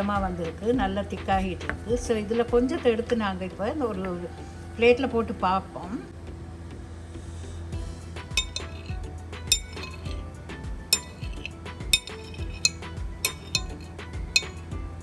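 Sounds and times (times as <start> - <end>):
spoon clinking on ceramic plate: 8.4 - 10.2, 10.9 - 14.7.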